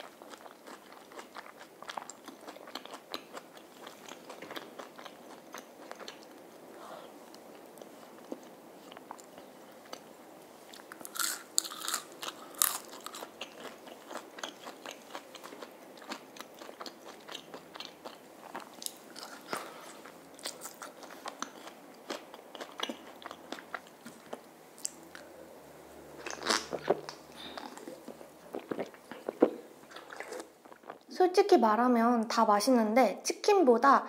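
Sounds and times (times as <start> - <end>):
crunching and chewing fried food: 0.0 - 6.6, 10.7 - 25.3, 26.2 - 31.1.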